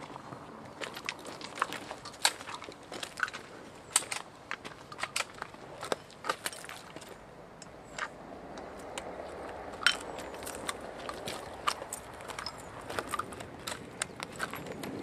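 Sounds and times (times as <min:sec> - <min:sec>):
gun handling clicks and knocks: 0:01.0 - 0:09.1, 0:09.8 - 0:14.7.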